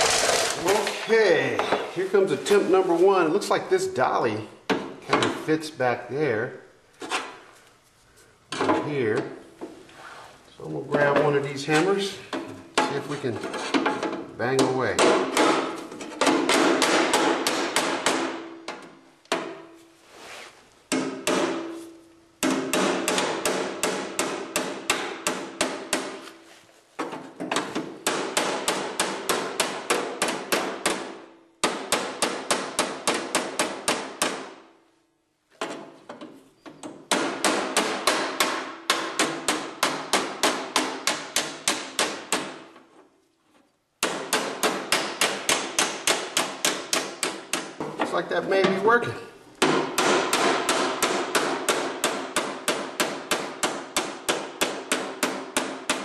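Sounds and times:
hammer striking sheet metal: 49.6s - 56.0s.

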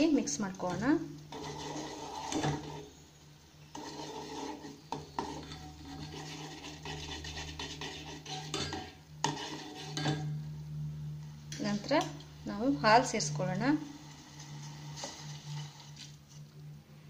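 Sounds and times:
steady low hum: 0.0s - 17.0s
metal spoon scraping a metal pot: 0.6s - 3.0s, 3.6s - 10.6s, 14.1s - 16.4s.

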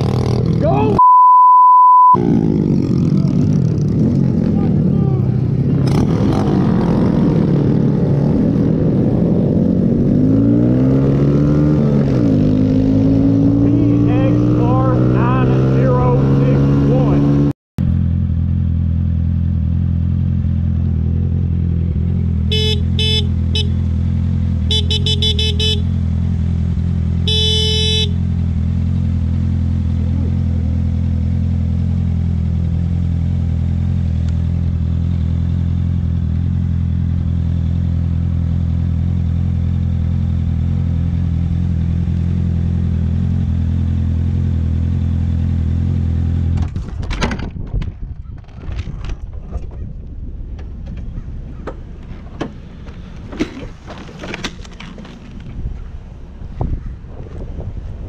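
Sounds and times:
motorcycle engine idling: 18.0s - 28.7s
horn honking: 22.4s - 26.2s, 27.2s - 28.4s.

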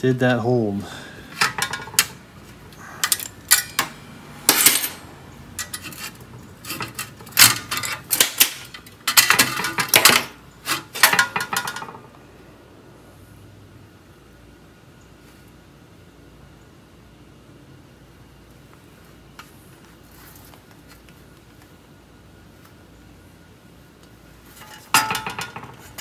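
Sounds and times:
metallic clanks and clicks: 1.4s - 2.2s, 3.0s - 5.0s, 5.6s - 12.0s.

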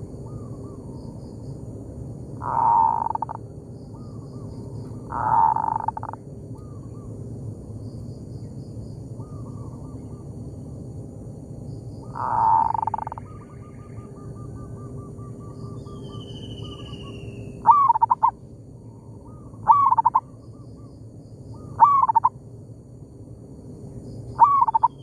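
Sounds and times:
dove rough coo phrases: 2.3s - 7.2s, 12.0s - 15.6s, 17.6s - 18.4s, 19.0s - 20.9s, 21.6s - 22.3s, 24.4s - 25.0s.

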